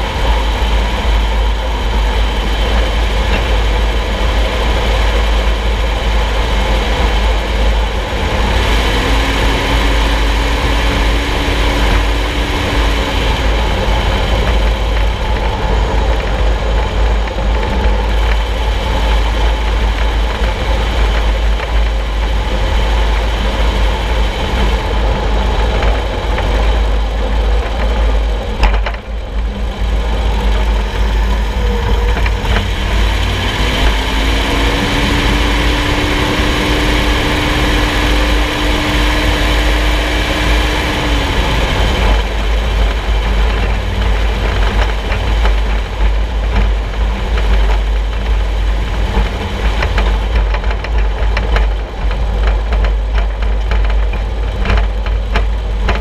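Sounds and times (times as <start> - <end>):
vehicle road and drivetrain noise: 0.0 - 56.0.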